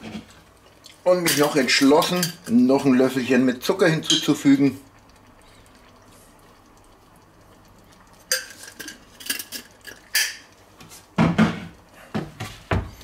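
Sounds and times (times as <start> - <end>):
utensils clinking against dishes: 1.2 - 2.6.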